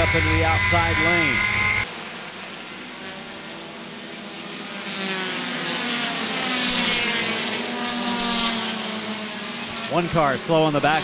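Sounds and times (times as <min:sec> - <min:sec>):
race car engines at speed: 0:00.0 - 0:11.0.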